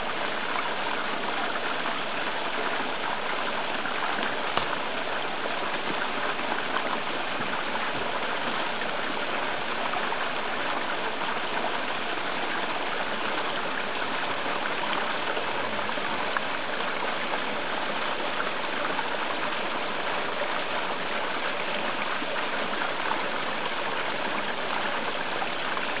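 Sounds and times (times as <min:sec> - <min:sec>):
stream running over pebbles: 0:00.0 - 0:26.0
small water splashes: 0:02.9 - 0:09.1.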